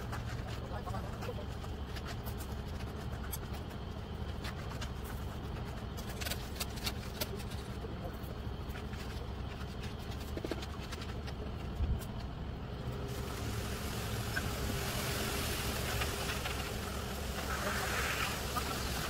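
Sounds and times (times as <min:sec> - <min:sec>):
diesel truck engine running: 0:11.2 - 0:19.0
hiss: 0:13.0 - 0:19.0.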